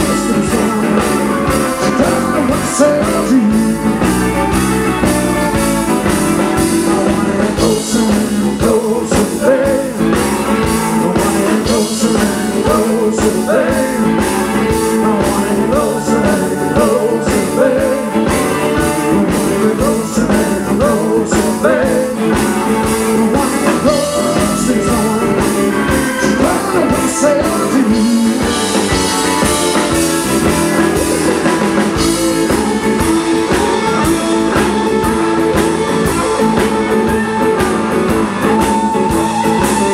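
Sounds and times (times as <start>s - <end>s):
lead guitar line: 0.0s - 39.9s
rock band playing: 0.0s - 39.9s.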